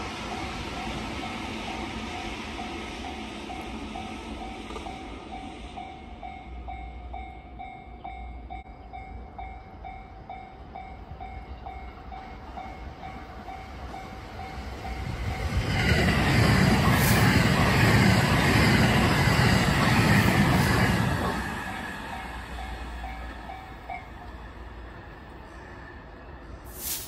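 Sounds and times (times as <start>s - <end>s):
electric train passing: 0.0s - 27.0s
level crossing warning bell: 22.0s - 24.3s.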